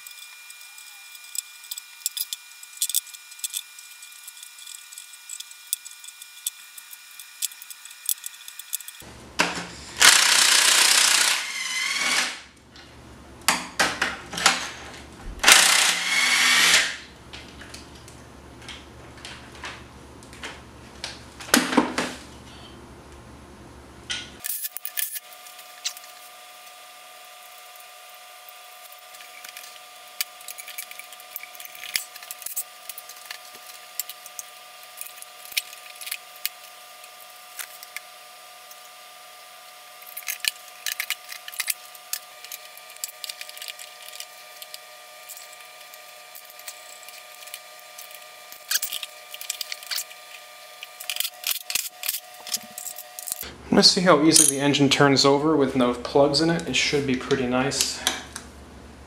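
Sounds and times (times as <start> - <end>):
cordless power tool loosening bolts: 15.4 - 16.9.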